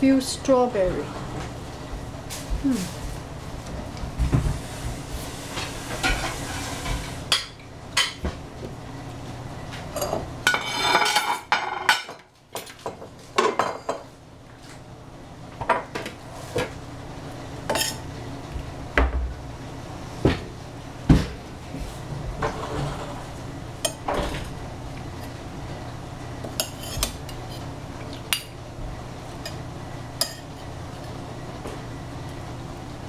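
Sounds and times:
utensil scraping dish: 4.6s - 7.2s, 10.5s - 11.5s, 22.4s - 24.0s
utensils clinking against dishes: 9.9s - 14.0s, 17.7s - 18.1s.

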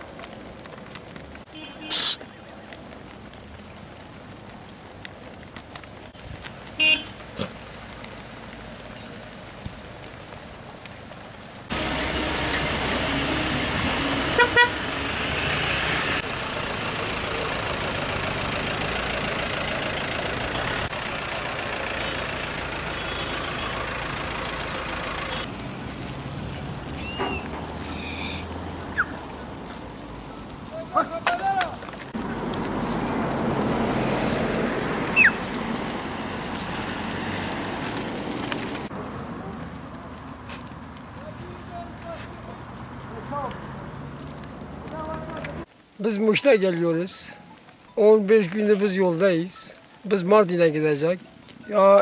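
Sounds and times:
car horn: 1.5s - 2.2s, 6.8s - 7.1s, 11.8s - 14.9s, 21.9s - 24.1s
vehicle rushing noise: 11.7s - 30.0s, 31.7s - 39.4s.

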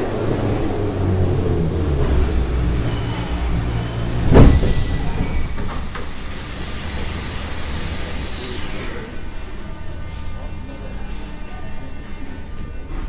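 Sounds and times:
sliding doors banging open: 0.0s - 8.1s
metro train rumbling: 0.0s - 13.0s.

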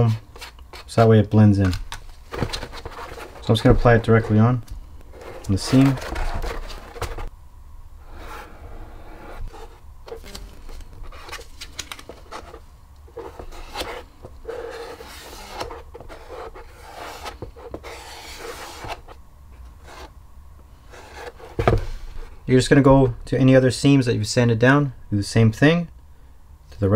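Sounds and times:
caulk rubbing and scraping: 13.2s - 19.1s.

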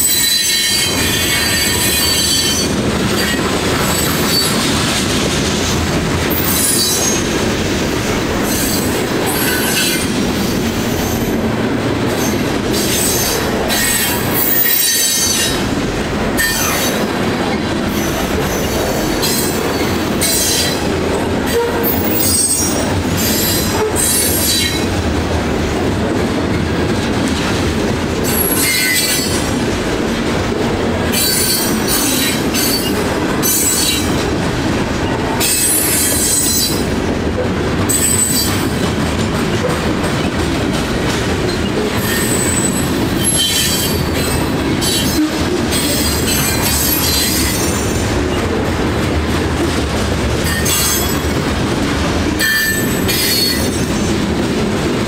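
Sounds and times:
train cars rumbling on rails: 0.0s - 55.0s.

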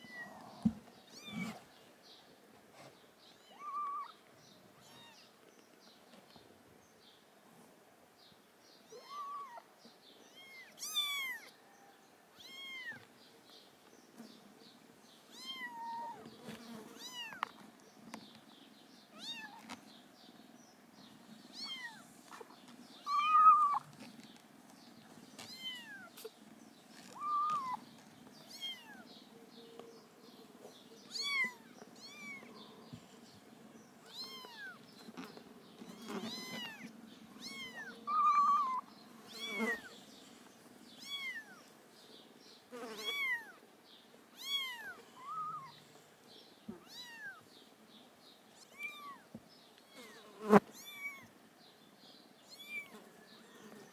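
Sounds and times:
kittens mewing: 3.4s - 4.2s, 23.0s - 23.9s, 35.9s - 39.9s.

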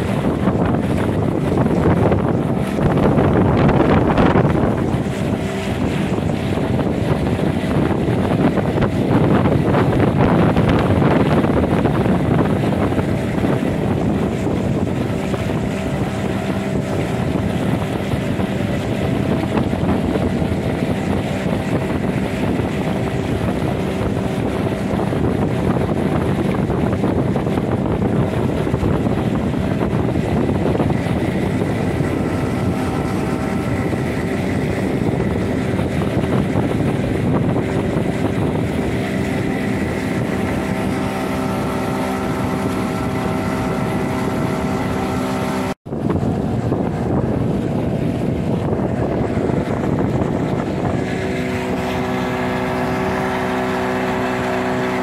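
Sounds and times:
boat motor running: 0.0s - 55.0s
wind noise on microphone: 0.0s - 55.0s.

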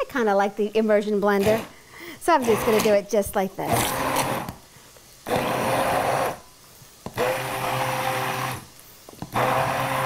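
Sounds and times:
immersion blender pureeing: 1.4s - 1.8s, 2.4s - 3.0s, 3.6s - 4.6s, 5.2s - 6.4s, 7.0s - 10.0s.

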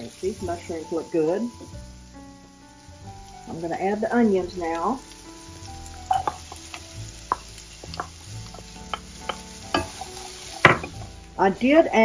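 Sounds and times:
mushrooms sizzling in a skillet: 0.0s - 12.0s
spatula tapping and scraping pan: 6.0s - 11.1s.

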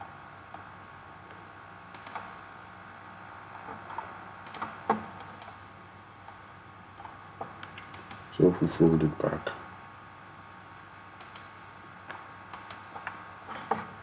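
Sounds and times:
faint background noise: 0.0s - 14.0s
mouse and keyboard clicks: 1.9s - 2.3s, 7.7s - 8.2s, 11.2s - 11.5s, 12.5s - 12.8s.

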